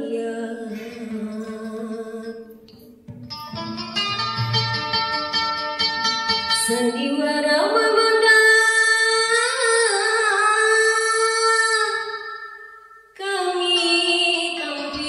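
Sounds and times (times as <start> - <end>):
woman singing unaccompanied: 0.0 - 2.6, 6.6 - 12.4, 13.2 - 15.0
plucked lute notes: 2.7 - 7.2.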